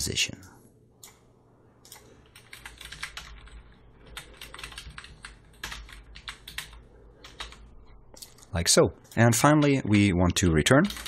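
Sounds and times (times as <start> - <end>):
computer keyboard typing: 1.8 - 8.4, 10.7 - 11.0.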